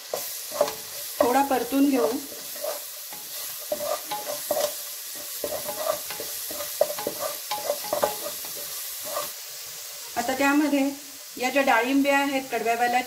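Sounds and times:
wooden spatula scraping a pan: 0.0s - 9.4s
onions sizzling in hot oil: 0.0s - 13.0s.

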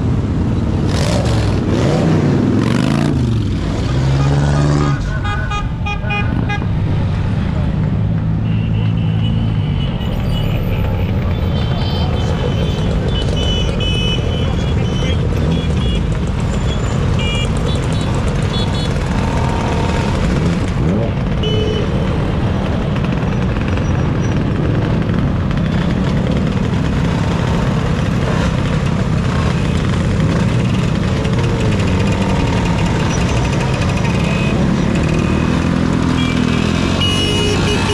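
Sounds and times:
motor scooters and motorcycles passing: 6.6s - 37.9s.

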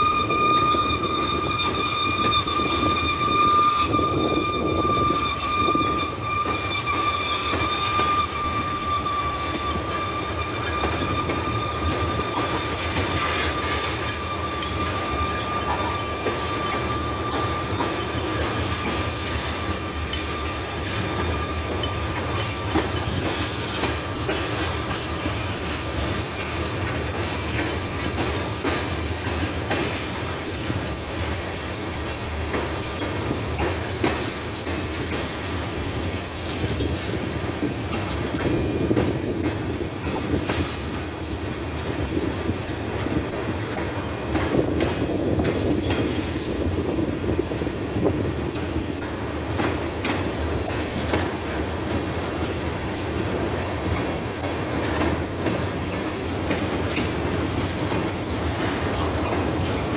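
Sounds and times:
high wheel squeal: 0.0s - 30.0s
train wheels rumbling on rail: 0.0s - 59.9s.

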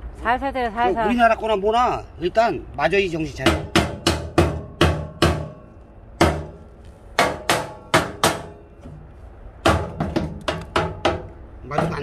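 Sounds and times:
wooden mallet knocking steel frame: 3.4s - 6.6s, 7.2s - 9.0s, 9.6s - 12.0s.

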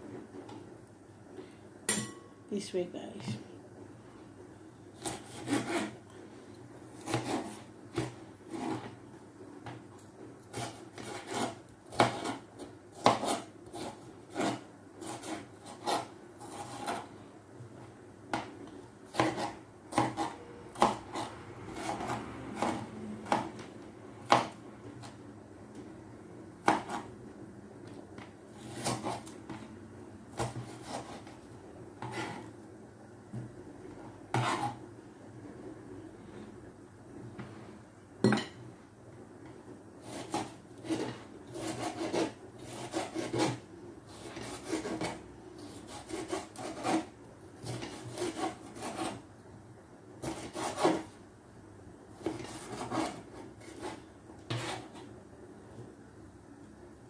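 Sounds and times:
knife chopping on plastic board: 7.0s - 8.9s, 10.5s - 12.4s, 13.0s - 17.0s, 19.1s - 23.6s, 24.2s - 25.2s, 26.6s - 27.1s, 30.3s - 31.4s, 40.1s - 43.6s, 52.2s - 55.0s.

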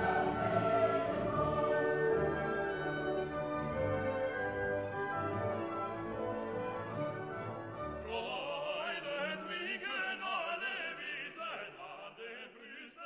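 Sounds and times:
operatic singing with vibrato: 0.0s - 3.0s, 7.9s - 13.0s.

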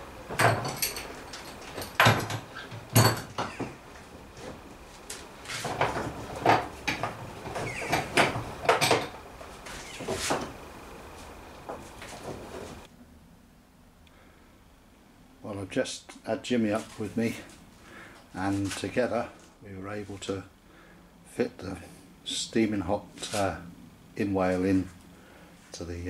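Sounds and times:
wooden strips knocking and rattling: 0.2s - 10.6s.

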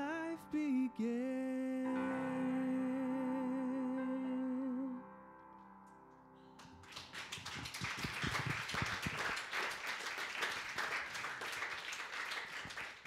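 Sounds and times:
crowd applauding: 6.6s - 13.0s.

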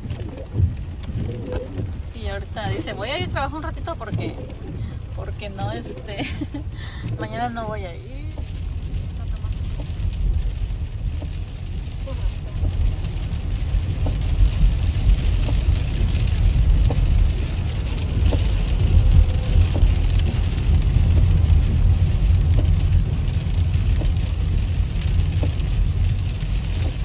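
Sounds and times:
car cabin road and engine rumble: 0.0s - 27.0s.

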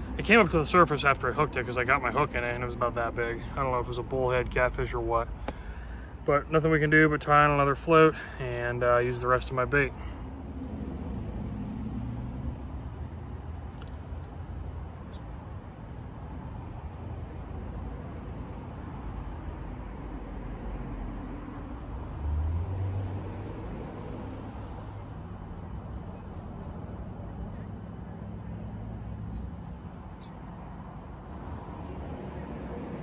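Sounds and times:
road traffic rumble: 0.0s - 33.0s
vehicle passing: 9.8s - 13.4s, 17.9s - 33.0s.

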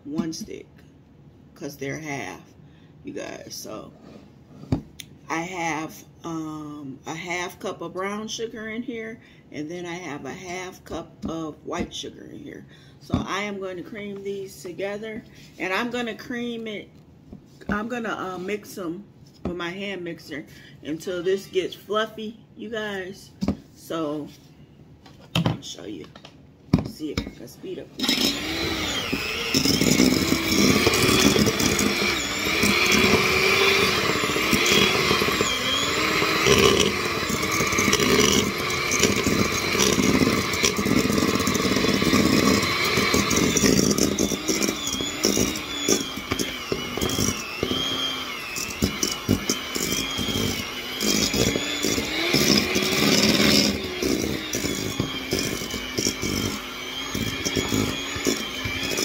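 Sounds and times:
electric hand mixer whine: 28.0s - 59.0s.

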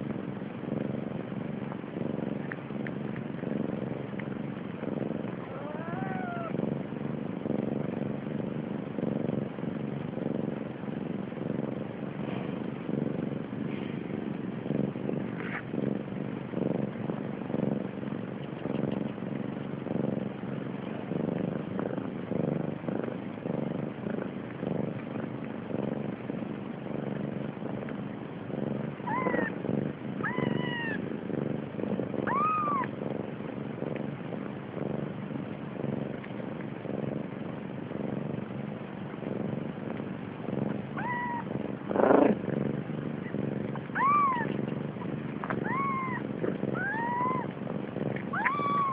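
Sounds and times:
cat purring: 0.0s - 48.9s
kitten mewing: 5.4s - 6.6s, 29.1s - 29.5s, 30.2s - 31.0s, 32.2s - 32.9s, 41.0s - 42.4s, 43.9s - 44.6s, 45.4s - 47.5s, 48.2s - 48.9s.

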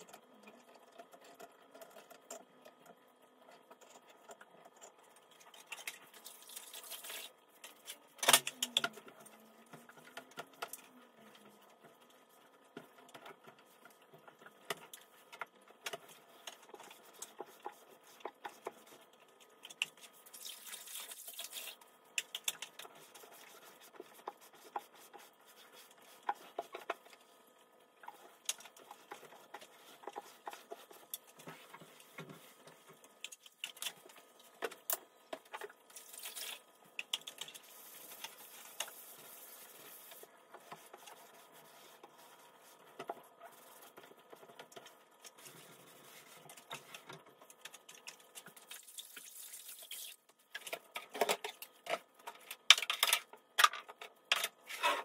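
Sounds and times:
cloth scrubbing cabinets: 28.1s - 33.0s, 37.3s - 44.7s, 45.3s - 47.1s.

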